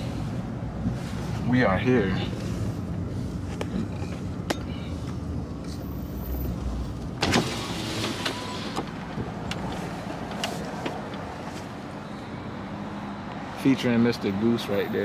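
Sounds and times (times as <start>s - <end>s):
power window motor: 7.2s - 9.0s.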